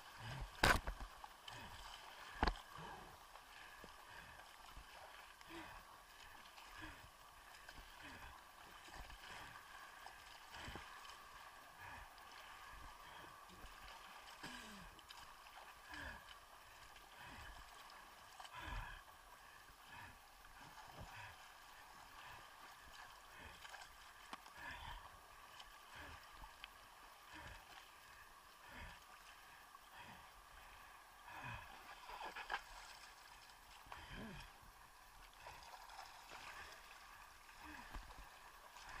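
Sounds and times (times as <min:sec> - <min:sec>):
water sloshing and gurgling: 0:00.0 - 0:39.0
water thumping against camera: 0:00.6 - 0:01.1.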